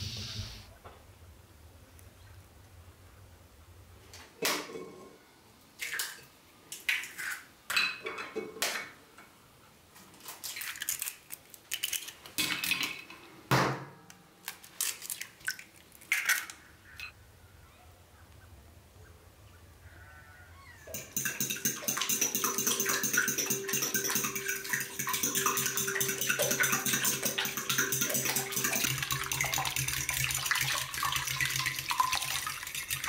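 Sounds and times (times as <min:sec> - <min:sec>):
pots and utensils clinking: 0:20.9 - 0:33.0.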